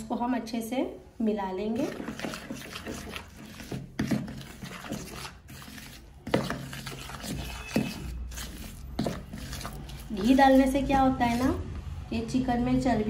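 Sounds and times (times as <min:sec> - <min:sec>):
paste scraping against bowl: 0:01.7 - 0:11.7.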